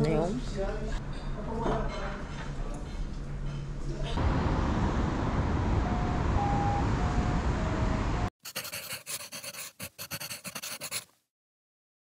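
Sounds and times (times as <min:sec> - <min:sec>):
pen scratching clicks: 0:08.5 - 0:11.1.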